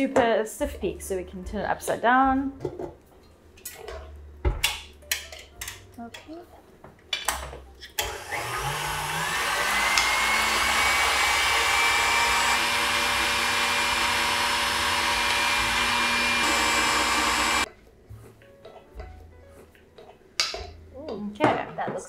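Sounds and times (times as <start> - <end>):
stand mixer whisking: 8.1 - 17.7.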